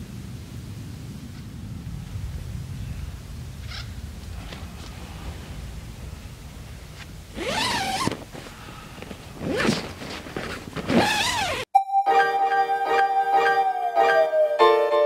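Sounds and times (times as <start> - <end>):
tent zipper being pulled open: 7.3 - 11.7
piano music: 11.7 - 15.0.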